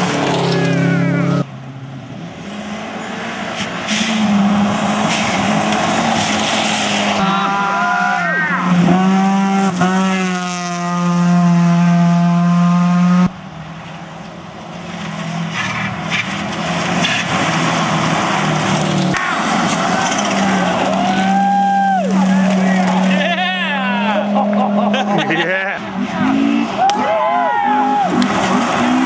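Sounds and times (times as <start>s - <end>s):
rally car engines: 0.0s - 29.0s
rotary engine revving hard: 2.1s - 13.3s, 15.1s - 26.8s, 27.6s - 29.0s
gravel noise: 3.3s - 10.9s, 13.3s - 27.0s.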